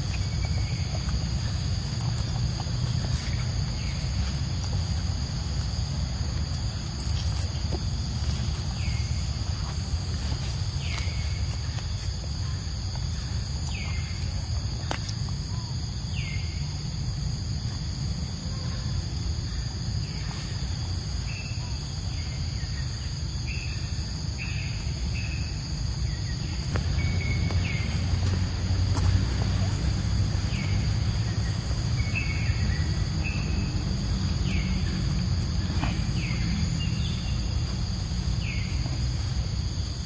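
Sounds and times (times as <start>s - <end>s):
low steady rumble: 0.0s - 14.9s, 24.7s - 40.0s.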